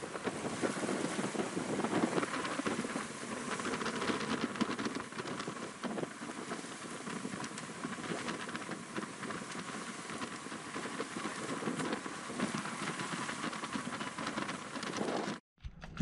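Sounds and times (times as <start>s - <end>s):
water rushing along hull: 0.0s - 15.4s
wind buffeting microphone: 0.0s - 16.0s.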